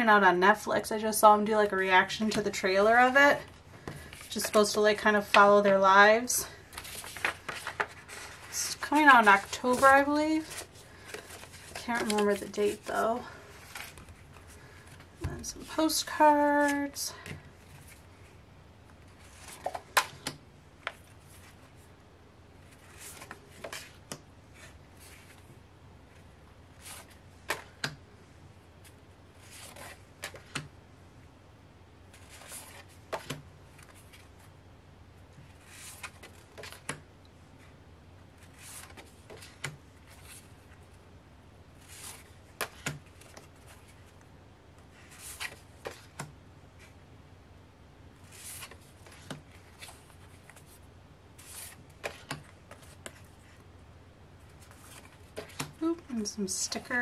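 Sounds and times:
postcards being leafed through: 6.5 - 17.0, 22.6 - 25.5, 28.8 - 30.7, 32.1 - 34.4, 35.4 - 37.0, 38.4 - 40.8, 41.8 - 44.2, 44.9 - 46.9, 48.2 - 53.7, 54.4 - 57.0.

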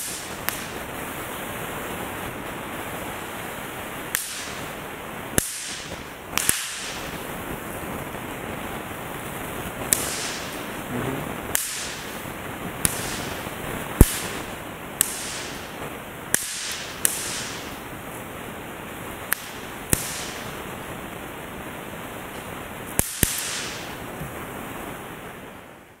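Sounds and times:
snap poppers cracking: 0.0 - 1.0, 4.1 - 4.8, 5.4 - 7.3, 9.7 - 18.0, 19.2 - 20.7, 22.4 - 24.0
steady hiss: 0.0 - 26.0.

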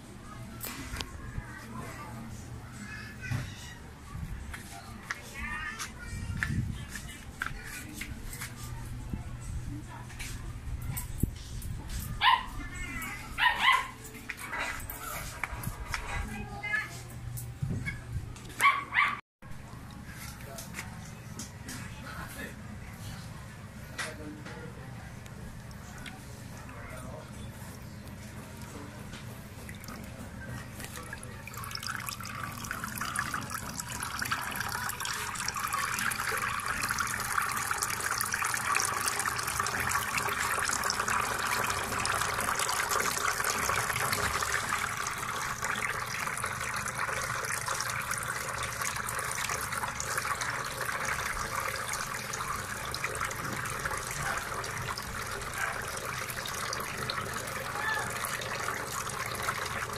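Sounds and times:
water trickling into fountain basin: 25.3 - 59.9.

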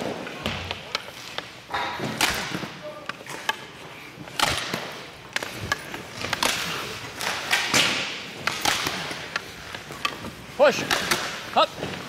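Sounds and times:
pucks striking goalie pads: 0.0 - 12.0
skate blades scraping ice: 3.2 - 12.0.

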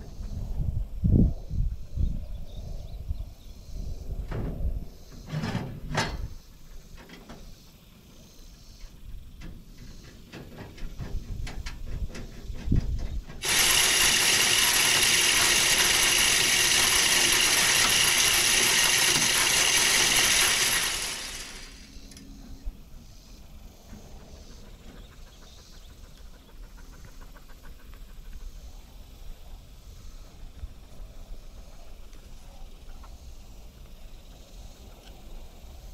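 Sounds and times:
corn rattling against metal: 10.4 - 21.9
feeder spinner motor: 13.4 - 22.7.

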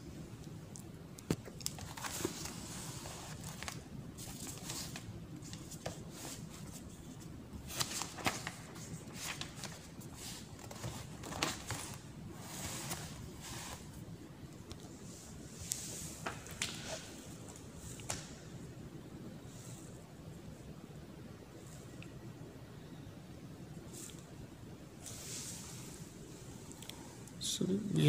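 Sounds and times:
steady low hiss: 0.0 - 28.0
paper rustling: 1.3 - 14.0.

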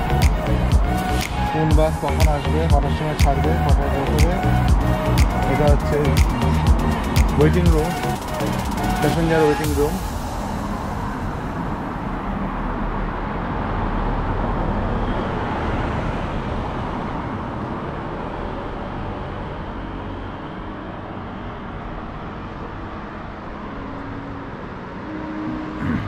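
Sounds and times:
traffic hum: 0.0 - 26.0
car driving past: 10.0 - 26.0.

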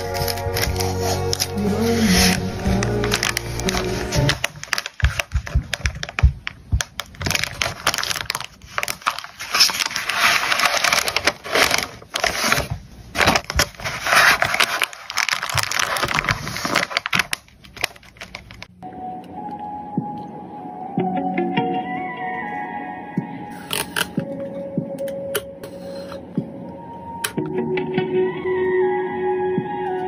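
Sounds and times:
music: 0.0 - 4.4, 18.8 - 30.0
plastic and paper crinkling: 0.0 - 18.7.

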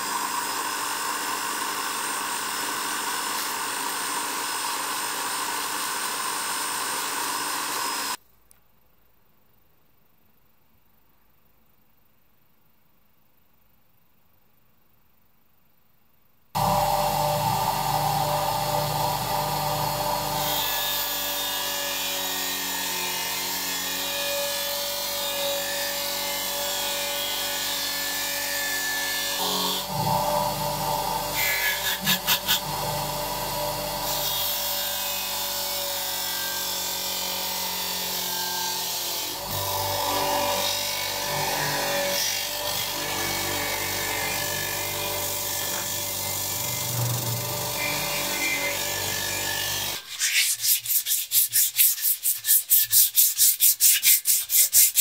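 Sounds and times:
bench grinder wire brush on metal: 31.4 - 32.9, 47.0 - 55.0.

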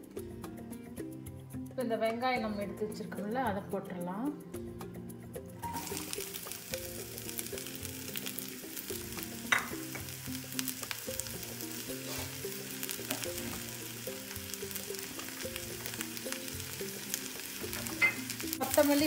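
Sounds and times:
onions sizzling in hot oil: 5.6 - 19.0.

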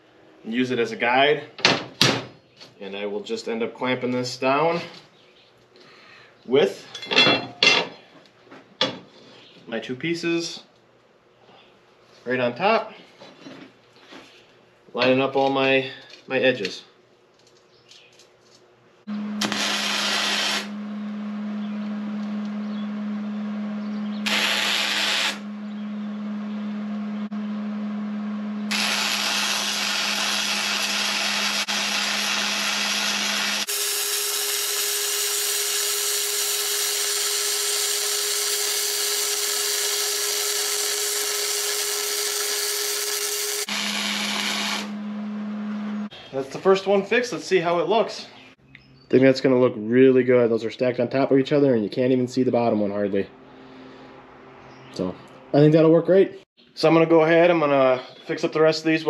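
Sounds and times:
welder hum: 19.1 - 46.1
welding arc crackling: 19.4 - 20.8, 24.2 - 25.4, 28.7 - 45.0.

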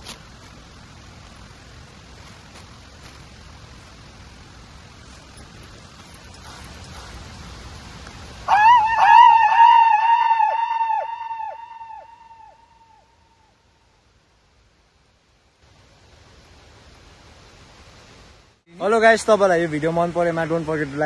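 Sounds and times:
outdoor rustling: 0.0 - 9.1
high wavering yell with echo: 8.5 - 13.1.

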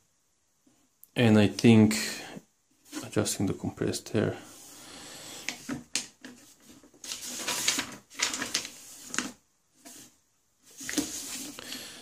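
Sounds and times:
paper pages rustling: 5.4 - 11.7.

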